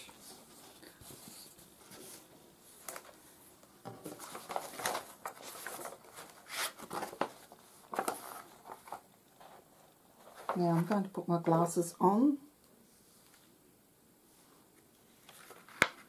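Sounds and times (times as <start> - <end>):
paper rustling and crinkling: 0.0 - 3.3, 3.9 - 11.2, 15.1 - 16.0.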